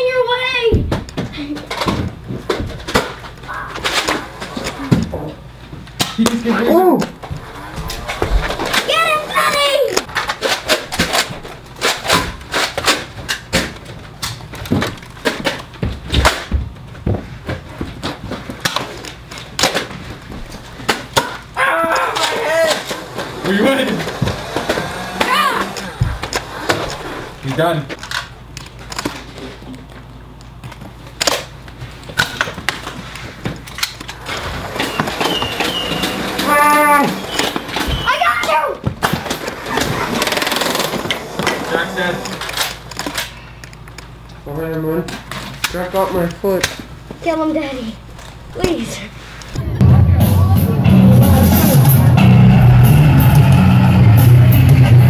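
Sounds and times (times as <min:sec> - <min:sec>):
footfalls: 0:07.1 - 0:10.1, 0:21.7 - 0:28.0
plastic blasters knocking: 0:20.8 - 0:27.4.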